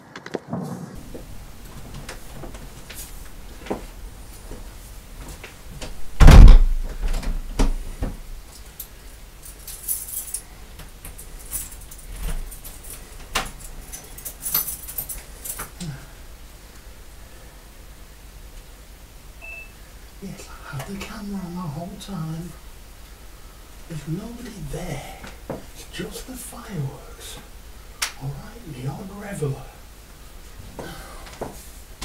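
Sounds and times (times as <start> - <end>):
heavy thump: 6.2 - 8.2
keys jangling: 8.8 - 15.8.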